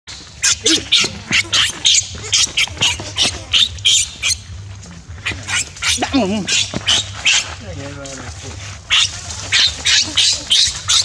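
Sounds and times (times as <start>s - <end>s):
baby monkey shrieking: 0.4s - 4.6s, 5.2s - 7.6s, 8.9s - 11.0s.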